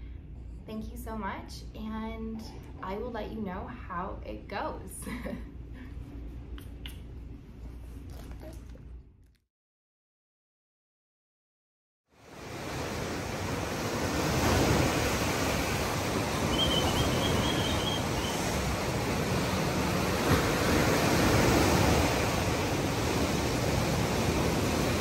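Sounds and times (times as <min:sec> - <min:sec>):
waves breaking: 0:12.2 - 0:25.0
faint high chirp: 0:16.4 - 0:18.4.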